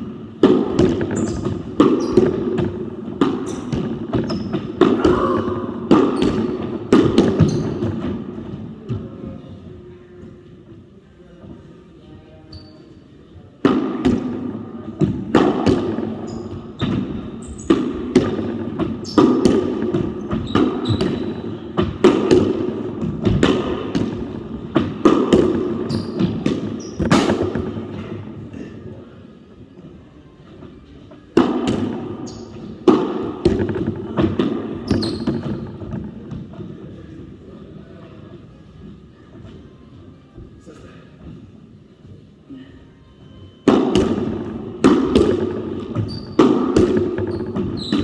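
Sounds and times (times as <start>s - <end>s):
rackets striking ball: 0.0s - 9.1s, 13.6s - 28.6s, 31.3s - 36.7s, 43.6s - 48.0s.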